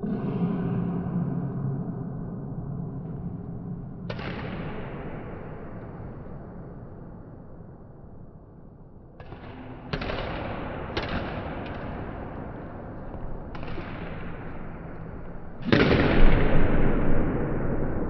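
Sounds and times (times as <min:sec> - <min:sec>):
racket hitting shuttlecock: 0:09.2 - 0:12.1.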